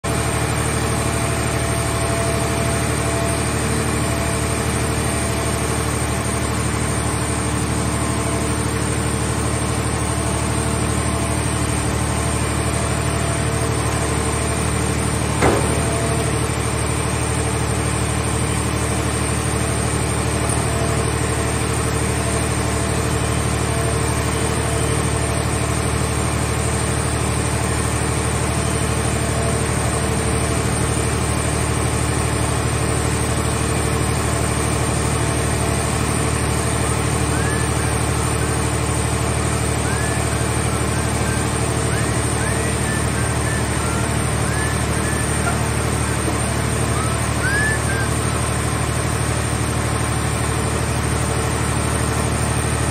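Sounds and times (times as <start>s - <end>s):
hydraulic power unit drone: 0.0s - 52.9s
sharp knock: 15.4s - 16.2s.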